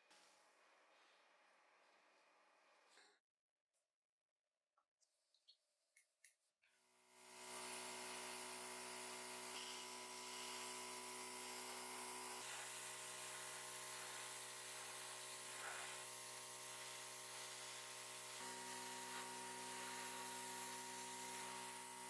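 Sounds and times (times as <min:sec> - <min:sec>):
airbrush hissing: 0:07.5 - 0:22.0.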